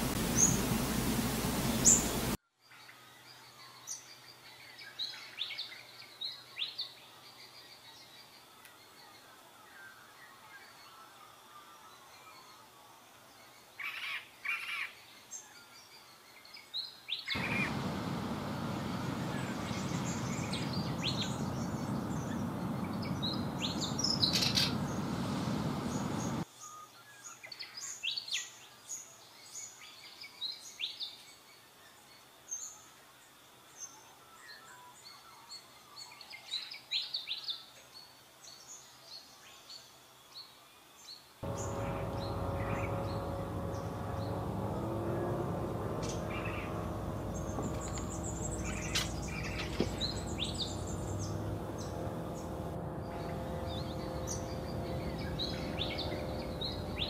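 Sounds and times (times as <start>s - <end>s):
birds chirping: 0.0s - 2.4s, 17.3s - 26.4s, 41.4s - 57.0s
faint hum: 0.0s - 2.4s, 17.4s - 26.4s, 41.4s - 57.0s
steady rushing noise: 0.0s - 2.4s, 17.4s - 26.4s, 41.4s - 57.0s.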